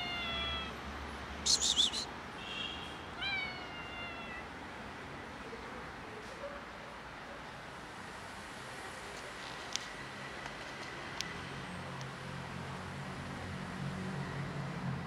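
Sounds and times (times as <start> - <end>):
cat meowing: 0.0 - 0.8, 3.2 - 4.5
short high call: 1.4 - 2.8
rustling noise: 9.1 - 11.0.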